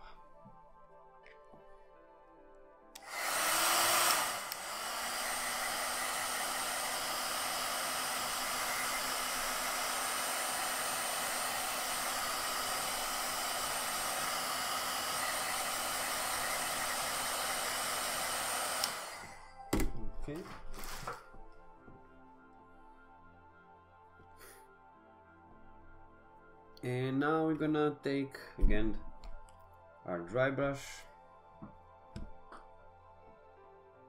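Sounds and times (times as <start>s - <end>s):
hair dryer blowing: 3.0s - 19.7s, 20.8s - 21.2s.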